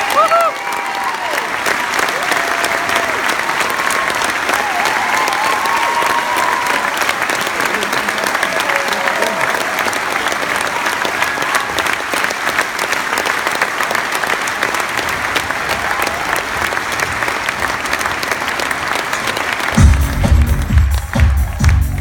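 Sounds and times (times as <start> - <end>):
audience applauding: 0.0 - 22.0
loud bass-heavy music: 19.8 - 22.0.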